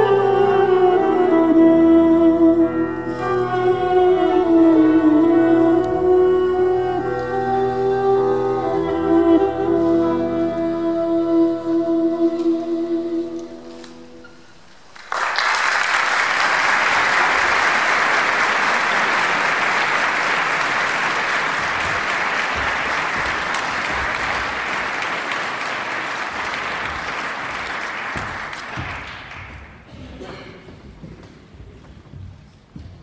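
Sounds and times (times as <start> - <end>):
duduk note: 0.0 - 14.6
audience applause: 14.9 - 29.9.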